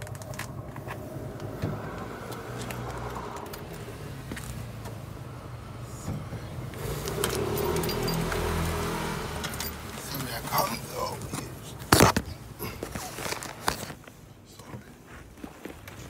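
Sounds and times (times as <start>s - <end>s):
low rumble: 0.0s - 9.6s
keys jangling: 7.0s - 8.6s, 9.4s - 10.0s.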